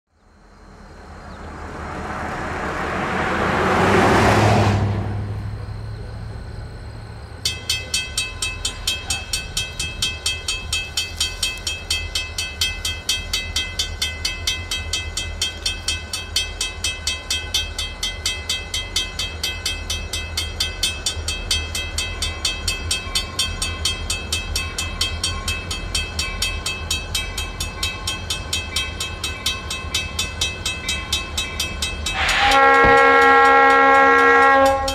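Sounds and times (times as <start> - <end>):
whoosh: 1.3 - 5.6
crossing bell ringing: 7.4 - 34.9.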